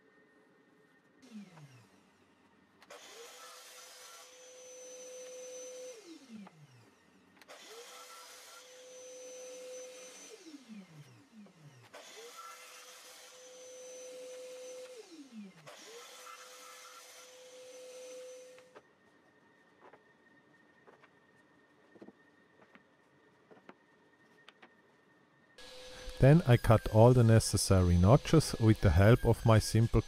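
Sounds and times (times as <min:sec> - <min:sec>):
mitre saw motor whining: 0:01.2 - 0:20.0, 0:25.6 - 0:30.0.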